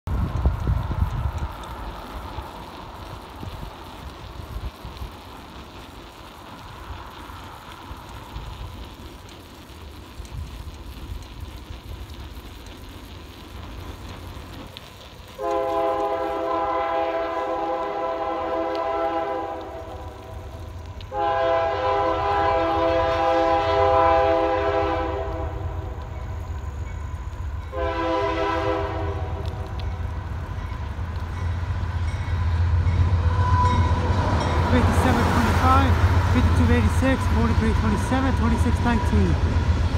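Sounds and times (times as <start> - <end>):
train diesel engines rumbling: 0.1 - 39.9
locomotive air horn blasts: 15.4 - 20.1, 21.1 - 26.0, 27.7 - 29.7, 33.2 - 36.7.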